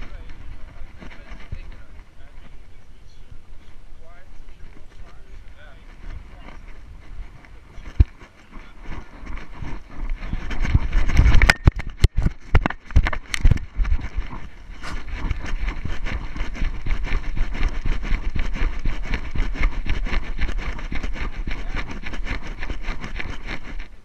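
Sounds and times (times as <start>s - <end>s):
wind rumble on microphone: 0.0s - 24.0s
camera mount knocking and rattling: 11.0s - 14.2s.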